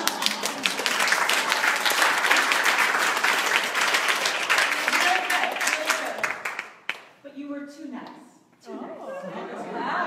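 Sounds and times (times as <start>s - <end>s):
group applauding: 0.0s - 7.2s.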